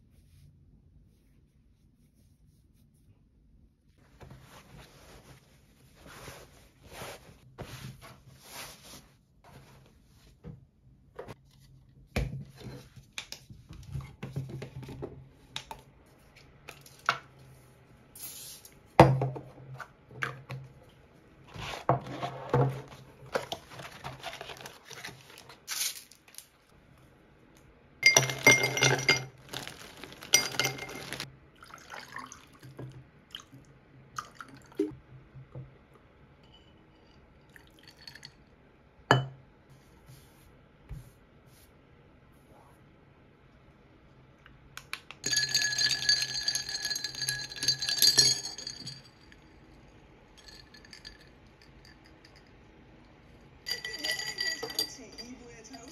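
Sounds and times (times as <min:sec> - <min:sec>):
ice cubes clinking in glass: 0:28.0 - 0:31.3, 0:45.2 - 0:49.5, 0:50.4 - 0:52.5, 0:53.7 - 0:55.4
tea bag sachet rustling: 0:29.4 - 0:31.3
liquid sounds: 0:29.4 - 0:35.0.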